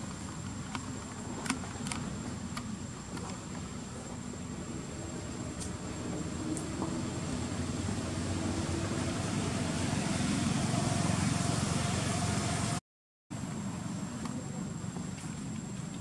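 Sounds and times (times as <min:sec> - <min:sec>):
distant vehicle engine rumble: 0:00.0 - 0:12.8.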